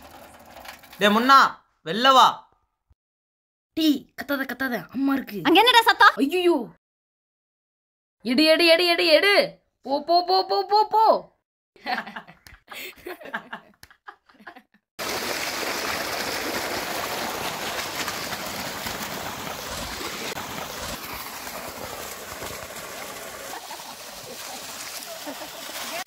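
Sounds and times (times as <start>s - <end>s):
laughter: 11.8s - 14.8s, 23.5s - 26.0s
water gushing and splashing: 15.0s - 26.0s.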